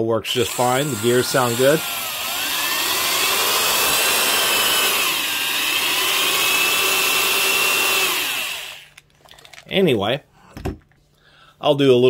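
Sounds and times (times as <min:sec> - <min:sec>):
drill motor and gears whining: 0:00.3 - 0:09.0.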